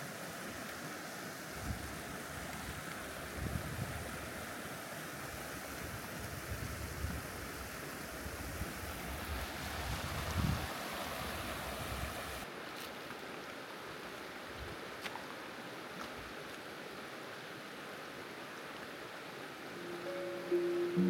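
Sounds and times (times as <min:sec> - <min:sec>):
steady wind hiss: 0:00.0 - 0:12.8, 0:13.6 - 0:21.0
wind buffeting microphone: 0:08.3 - 0:10.7.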